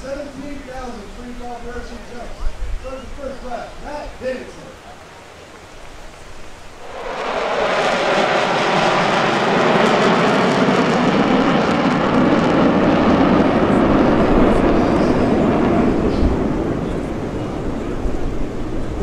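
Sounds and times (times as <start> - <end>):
jets flying past: 6.5 - 19.0.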